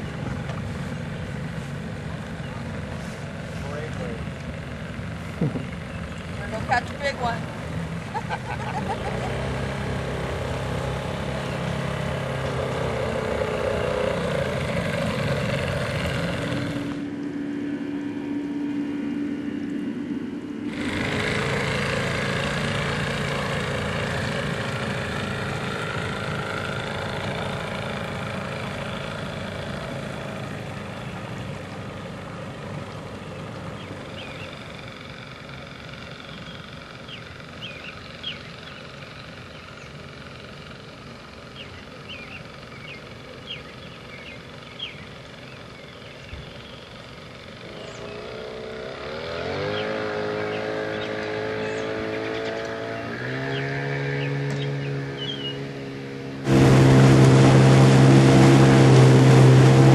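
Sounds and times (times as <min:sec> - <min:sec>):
outboard motor running: 0:00.0 - 0:59.9.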